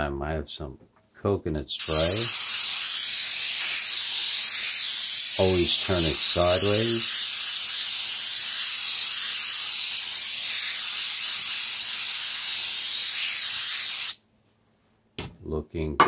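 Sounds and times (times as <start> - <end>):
aerosol spray hissing: 1.8 - 14.2.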